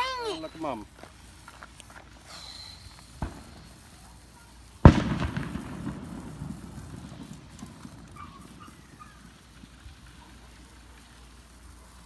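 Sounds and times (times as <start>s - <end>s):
firework bang with echo: 2.7s - 3.9s, 4.8s - 10.3s.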